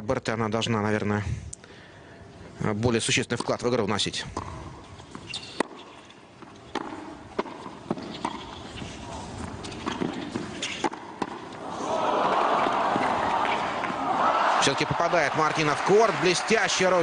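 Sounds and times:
racket hitting tennis ball: 5.2s - 11.6s
crowd applauding: 11.8s - 17.0s.

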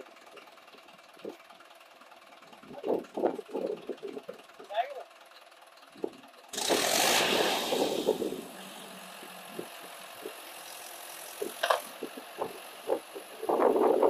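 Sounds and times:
tractor diesel engine revving: 0.0s - 14.0s.

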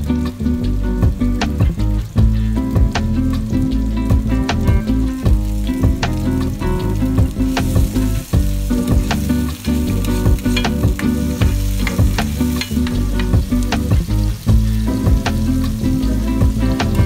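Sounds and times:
low background music: 0.0s - 17.0s
vegetables sizzling in oil: 0.0s - 17.0s
spoon scraping and tapping pan: 10.1s - 13.4s.

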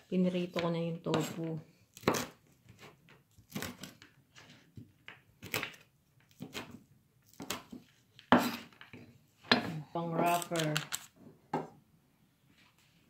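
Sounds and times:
knife cutting on wooden board: 1.1s - 4.8s, 5.4s - 8.8s.

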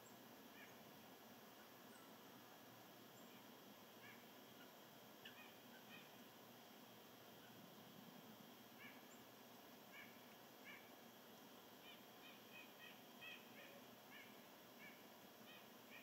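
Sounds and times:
faint bird calls: 0.5s - 0.8s, 3.2s - 6.3s, 8.8s - 9.3s, 9.9s - 10.9s, 11.8s - 16.0s.

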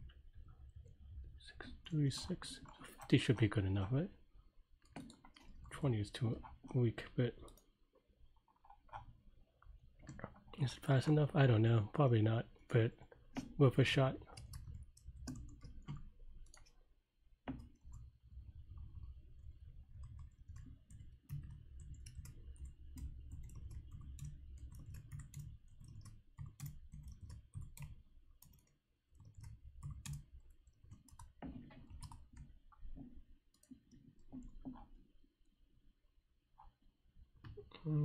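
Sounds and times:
keyboard and mouse clicking: 4.8s - 5.7s, 14.3s - 16.8s, 17.5s - 18.1s, 18.7s - 34.9s.

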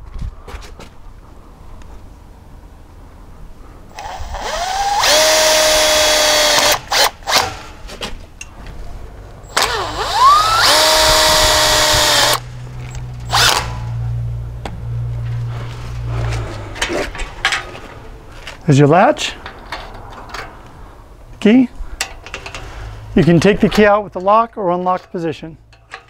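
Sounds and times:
impact driver motor whine: 4.0s - 7.4s, 9.5s - 12.4s.

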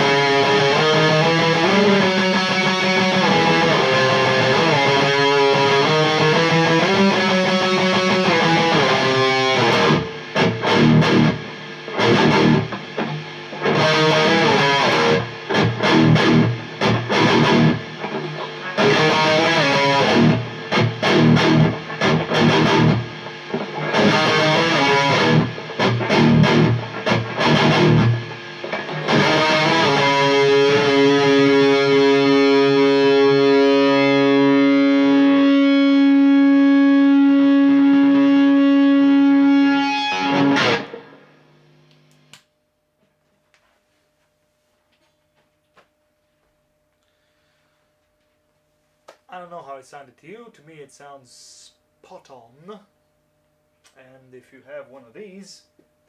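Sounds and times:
distorted electric guitar riffing: 0.0s - 41.9s.

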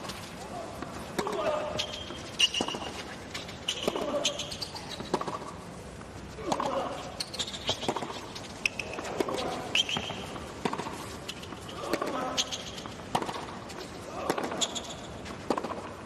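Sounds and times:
sneaker squeaks on court: 1.6s - 2.9s, 3.6s - 5.2s, 7.2s - 10.4s, 14.4s - 15.1s
racket striking tennis ball: 7.7s - 11.0s, 13.1s - 13.6s.

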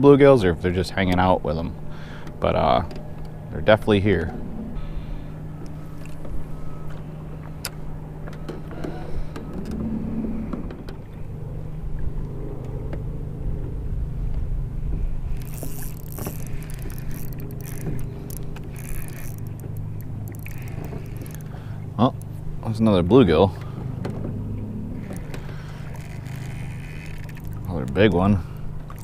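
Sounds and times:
boat motor humming: 0.0s - 29.0s
sharp clicks: 15.4s - 22.4s, 25.0s - 28.0s.

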